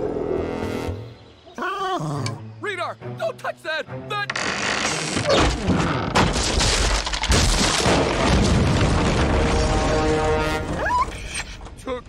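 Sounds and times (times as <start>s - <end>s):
background music: 0.0s - 6.4s
wooden structure collapsing: 4.3s - 12.0s.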